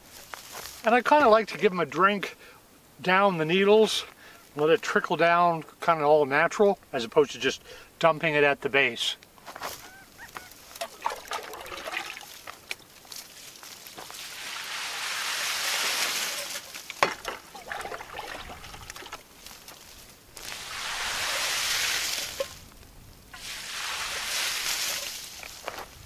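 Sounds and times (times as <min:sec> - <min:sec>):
water splashing through pine needles: 0:10.7 - 0:22.6, 0:23.4 - 0:26.0.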